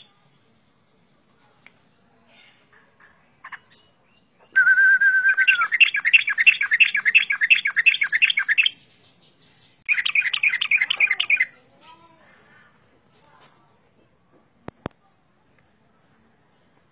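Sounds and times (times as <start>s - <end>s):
bulbul singing: 3.4s - 11.8s.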